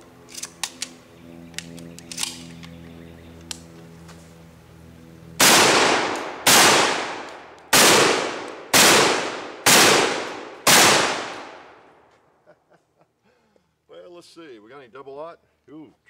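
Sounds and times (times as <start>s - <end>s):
shotgun shots: 5.4s - 11.8s.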